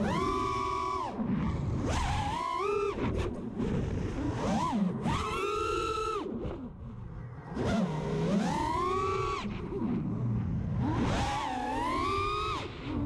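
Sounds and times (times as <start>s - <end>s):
quadcopter motors whining: 0.0s - 1.2s, 7.6s - 9.6s, 10.8s - 13.0s.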